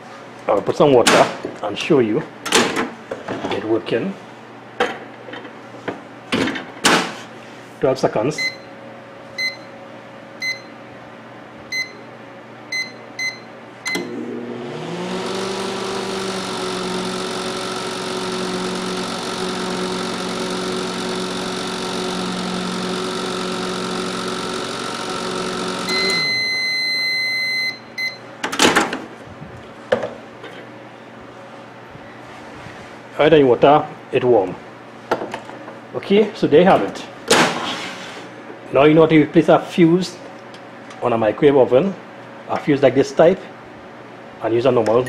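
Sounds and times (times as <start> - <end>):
microwave fan hum: 0.0 - 45.0
long end-of-cycle beep: 8.4 - 8.7, 9.4 - 9.7, 10.4 - 10.7, 11.7 - 12.1, 12.7 - 14.0, 25.9 - 28.3.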